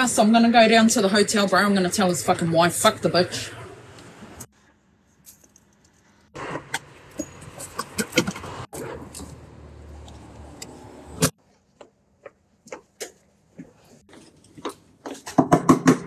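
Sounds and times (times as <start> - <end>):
outdoor background noise: 0.0 - 16.0
footsteps: 11.3 - 15.4.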